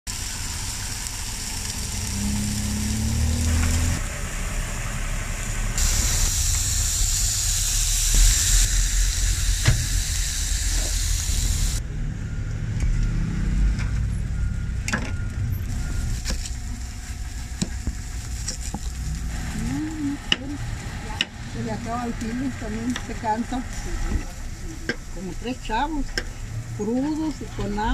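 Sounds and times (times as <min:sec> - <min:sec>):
food sizzling on griddle: 0:00.1 - 0:11.8, 0:15.7 - 0:26.0.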